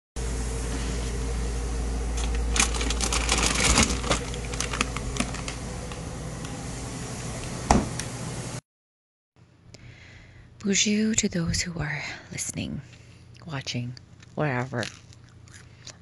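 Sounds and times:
steady low hum: 0:00.2 - 0:08.6
plastic bag crinkling: 0:02.2 - 0:06.0
fridge door thud: 0:07.6 - 0:08.0.

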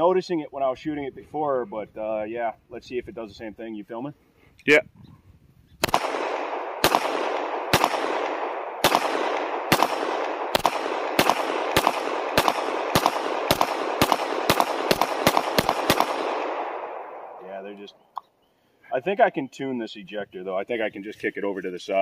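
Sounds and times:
echoing pistol shots: 0:05.8 - 0:17.4.

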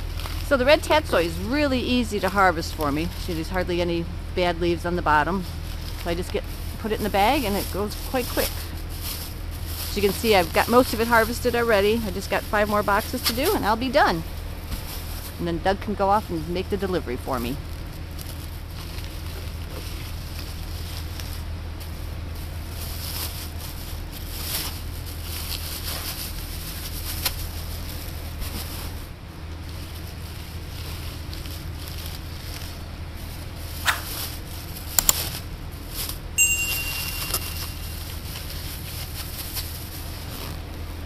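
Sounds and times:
steady low hum: 0:00.0 - 0:41.0
hands rustling leafy greens: 0:05.3 - 0:13.6, 0:17.7 - 0:35.2
sharp clicks: 0:35.0 - 0:35.3
brief high tone: 0:36.4 - 0:38.1.

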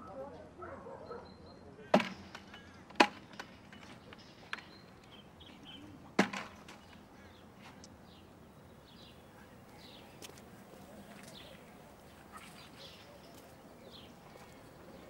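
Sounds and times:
loud sharp knocks: 0:02.0 - 0:04.0.

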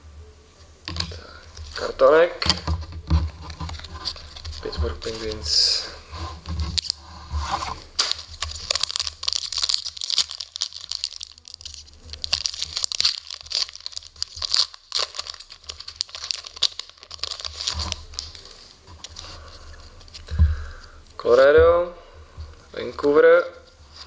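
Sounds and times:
foil wrapper tearing and crinkling: 0:06.8 - 0:07.0, 0:07.9 - 0:20.3.

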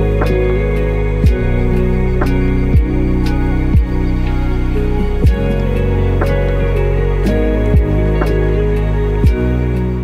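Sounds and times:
deep bass hits sliding down: 0:00.0 - 0:09.8
sustained chords: 0:00.0 - 0:10.0.

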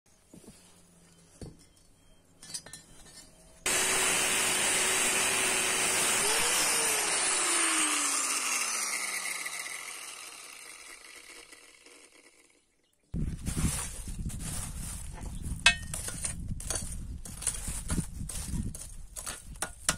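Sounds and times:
angle grinder cutting steel: 0:03.7 - 0:12.6.

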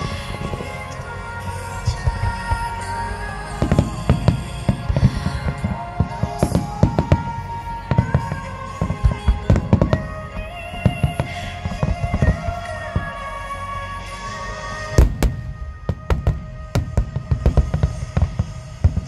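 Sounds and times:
music playing: 0:00.0 - 0:19.0
firework shells bursting: 0:14.8 - 0:19.0.

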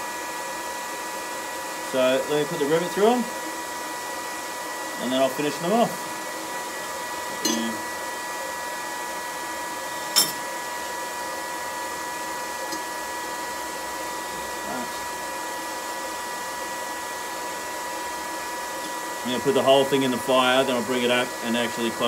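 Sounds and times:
electric blower whirring hum: 0:00.0 - 0:22.0
metallic clink of tongs: 0:07.4 - 0:07.7.

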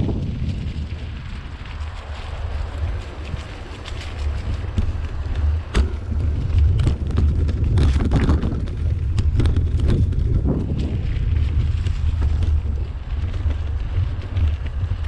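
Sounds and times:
bike clattering over bumps: 0:00.0 - 0:15.0
tyres crunching over leaves: 0:00.0 - 0:15.0
wind rumble on microphone: 0:00.0 - 0:15.0.

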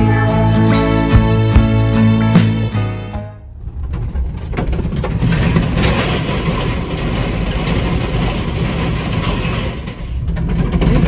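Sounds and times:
tyres rumbling on steel deck: 0:03.4 - 0:11.0
metal panels knocking and clanking: 0:03.9 - 0:11.0.

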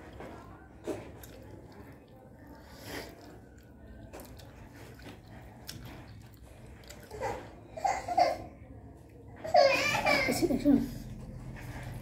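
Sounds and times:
chewing soft dumplings: 0:00.0 - 0:07.7, 0:11.0 - 0:12.0.

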